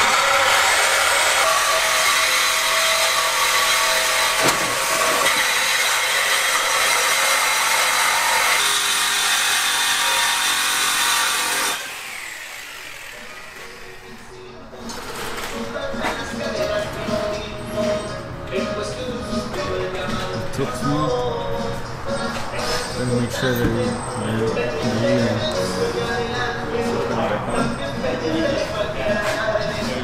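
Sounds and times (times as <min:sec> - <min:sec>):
power tool cutting steel pipe: 0:00.0 - 0:14.3.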